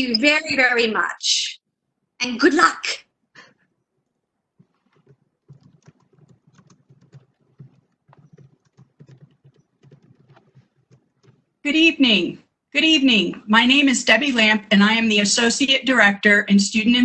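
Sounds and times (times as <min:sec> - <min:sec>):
faint clicks and taps: 0:04.0 - 0:11.6.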